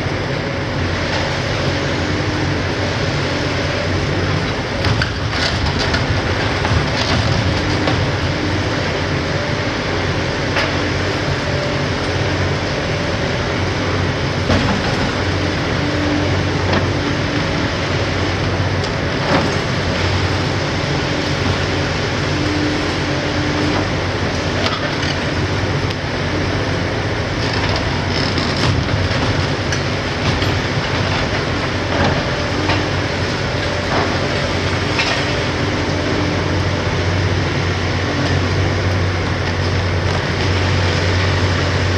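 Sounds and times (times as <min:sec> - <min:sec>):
excavator diesel engine running: 0:00.0 - 0:41.9.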